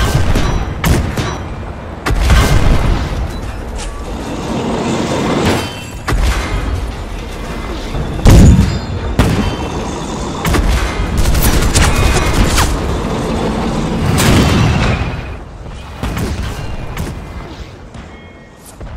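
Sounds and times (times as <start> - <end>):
tank cannon shots: 8.2 - 9.7.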